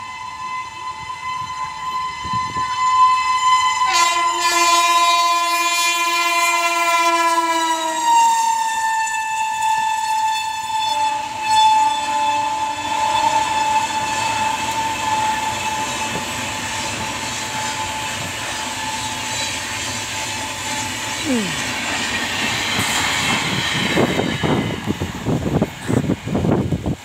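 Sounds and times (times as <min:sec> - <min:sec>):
locomotive air horn blast: 0:00.0 - 0:16.3
lower horn tone: 0:00.0 - 0:16.3
train running noise: 0:00.0 - 0:27.0.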